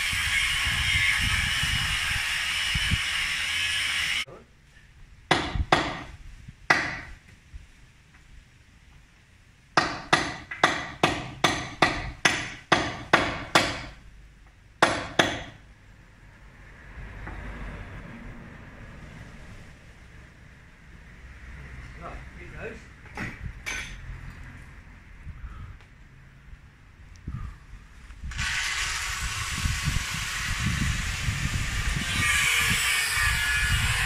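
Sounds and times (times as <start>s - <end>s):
loud hissing whine: 0.0s - 4.3s
hammer striking concrete: 5.3s - 6.1s, 9.8s - 14.0s, 14.8s - 15.6s.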